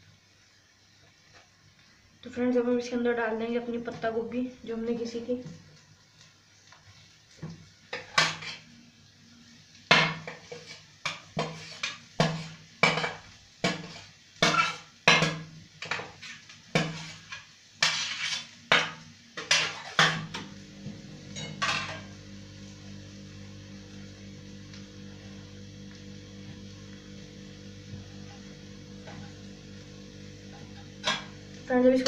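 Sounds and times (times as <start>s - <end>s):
steady low hum: 20.0s - 32.0s.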